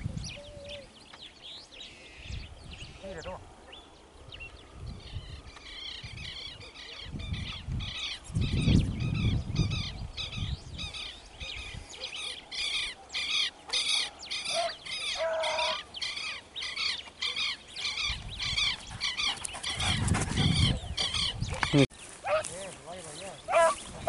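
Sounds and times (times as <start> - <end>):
bird calling sharp high calls: 5.5 - 19.9.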